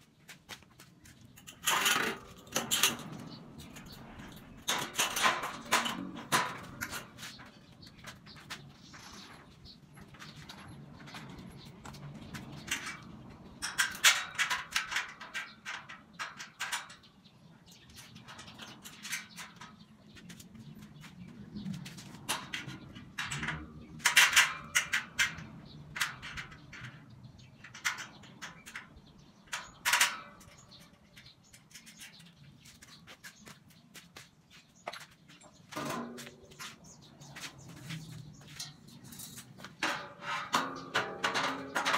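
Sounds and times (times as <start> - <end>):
metal tubing clanking: 38.3 - 41.9.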